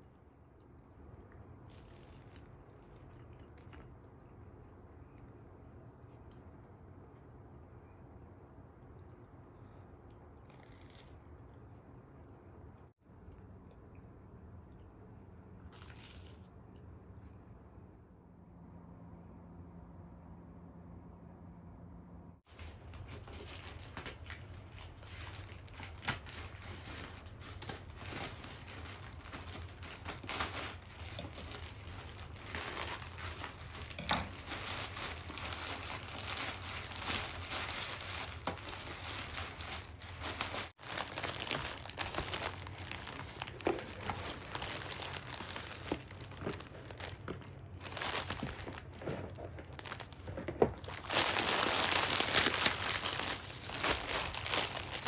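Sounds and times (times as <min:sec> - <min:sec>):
plastic bag crinkling: 0:01.6 - 0:03.9, 0:22.5 - 0:55.0.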